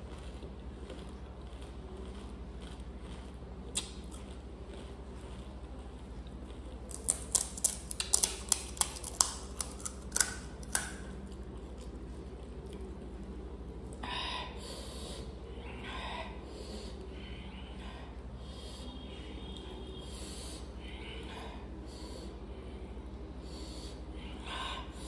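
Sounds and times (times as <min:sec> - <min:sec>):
crunching crisp snacks: 0:00.0 - 0:14.0
steady low hum: 0:00.0 - 0:25.0.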